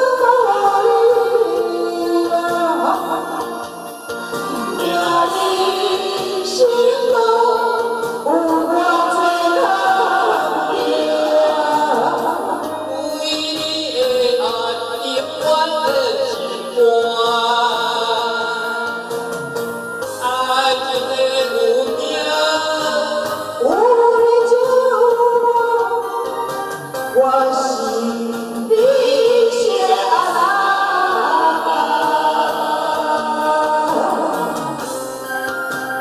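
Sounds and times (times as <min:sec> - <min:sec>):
woman singing: 0:00.0 - 0:03.7, 0:04.4 - 0:19.2, 0:20.2 - 0:26.4, 0:27.1 - 0:34.8
karaoke backing track: 0:00.0 - 0:36.0
man singing: 0:04.5 - 0:07.2, 0:08.3 - 0:19.3, 0:20.2 - 0:23.8.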